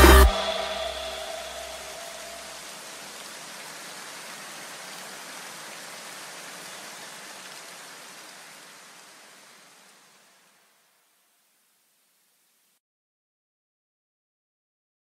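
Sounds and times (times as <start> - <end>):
steady hiss: 0.0 - 12.8.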